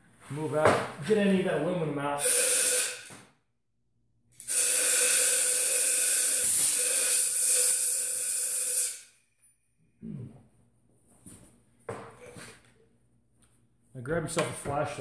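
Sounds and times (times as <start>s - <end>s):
compressed air blow gun hissing: 2.2s - 3.1s, 4.4s - 9.0s.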